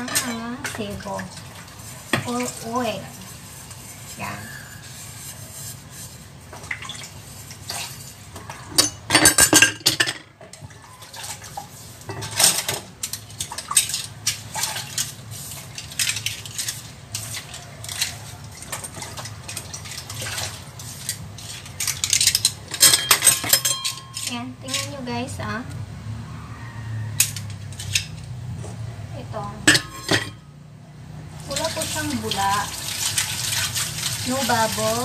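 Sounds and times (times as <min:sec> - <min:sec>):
dishes clinking in sink: 0:00.0 - 0:01.3, 0:08.4 - 0:15.1, 0:21.6 - 0:24.9, 0:29.6 - 0:30.4.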